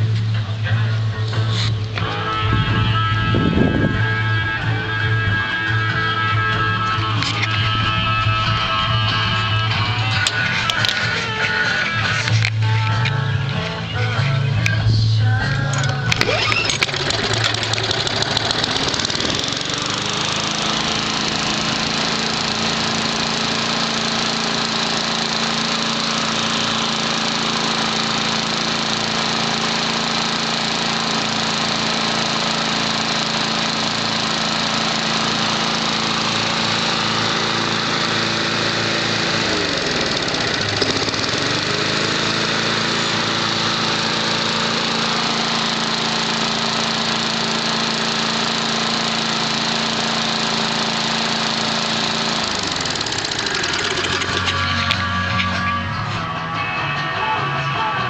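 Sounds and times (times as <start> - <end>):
lawn mower engine running: 0.0 - 56.6.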